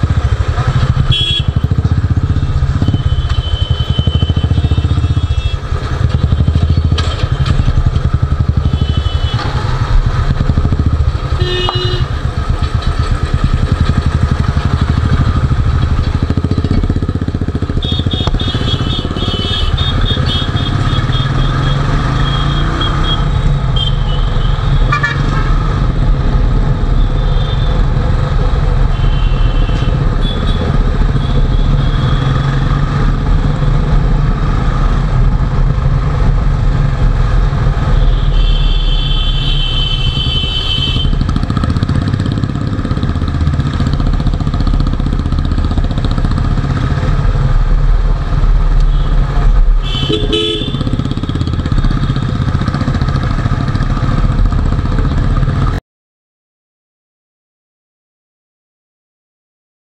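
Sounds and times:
motorcycle exhaust note: 0:00.0 - 0:47.7, 0:48.4 - 0:55.8
vehicle horns: 0:00.6 - 0:01.8, 0:02.6 - 0:07.8, 0:08.5 - 0:09.9, 0:11.2 - 0:12.3, 0:17.7 - 0:25.6, 0:28.7 - 0:32.6, 0:37.8 - 0:41.4, 0:48.8 - 0:52.4.

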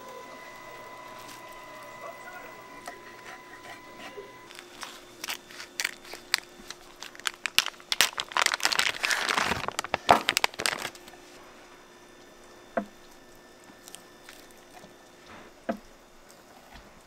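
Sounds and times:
crinkling and crackling: 0:04.3 - 0:11.4.

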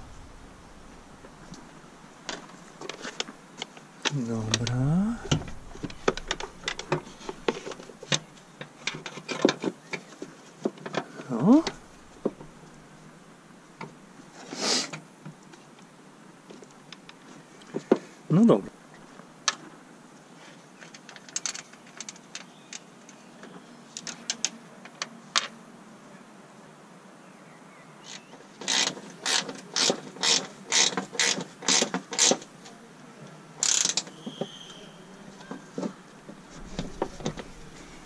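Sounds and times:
ratchet clicking: 0:33.6 - 0:34.0.

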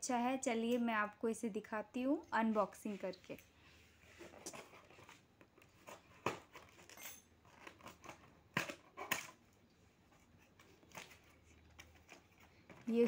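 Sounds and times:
cardboard scraping and rustling: 0:10.1 - 0:13.0.

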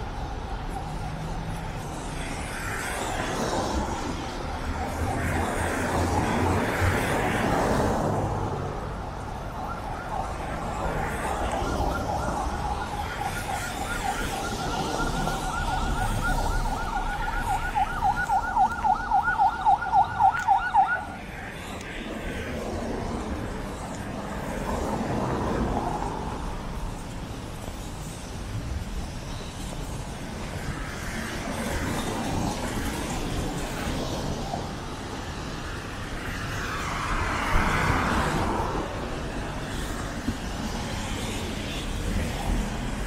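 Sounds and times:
vehicle passing in traffic: 0:00.0 - 0:43.0
emergency siren yelping: 0:04.3 - 0:07.7, 0:08.5 - 0:21.3.

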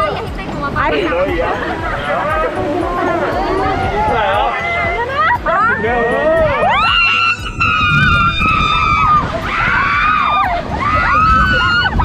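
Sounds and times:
low rumble: 0:06.6 - 0:12.0
riders screaming: 0:06.6 - 0:12.0.

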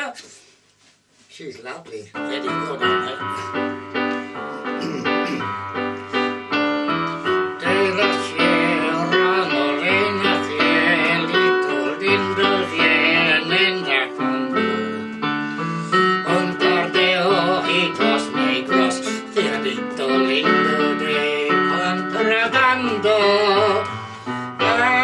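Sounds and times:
piano chords: 0:02.2 - 0:25.0
person singing with vibrato: 0:07.2 - 0:25.0.

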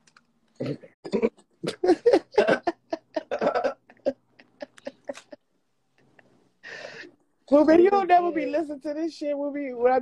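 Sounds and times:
man laughing: 0:01.6 - 0:05.4.

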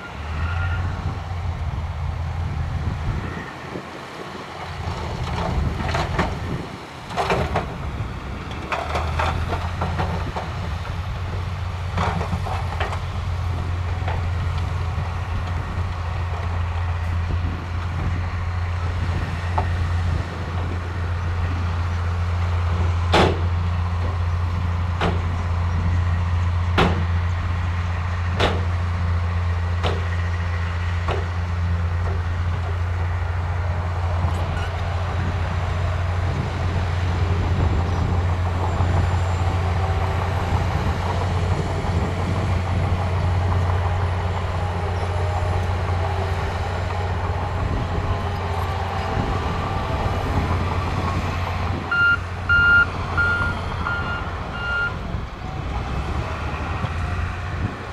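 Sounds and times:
diesel engines droning: 0:00.0 - 0:57.9
reversing alarm beeping: 0:51.9 - 0:55.0.

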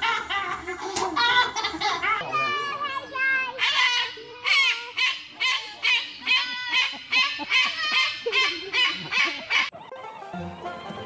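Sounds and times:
cockatoo screeching: 0:03.6 - 0:09.7.

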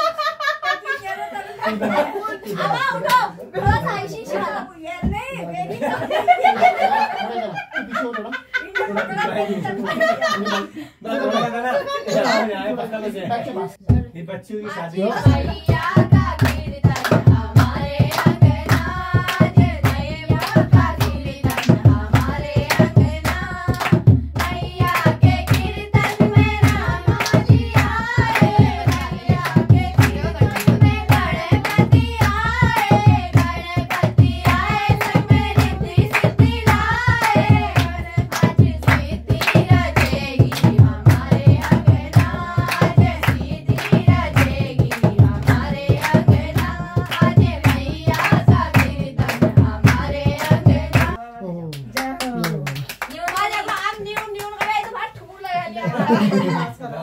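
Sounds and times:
group singing: 0:15.0 - 0:51.2
hands clapping a fast beat: 0:15.2 - 0:55.6.

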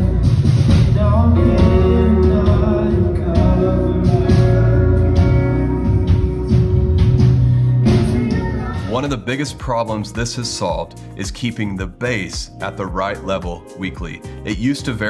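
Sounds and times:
acoustic guitar: 0:00.0 - 0:15.0
heavy steady bass: 0:00.0 - 0:15.0
people singing: 0:01.0 - 0:05.7, 0:07.8 - 0:09.1.

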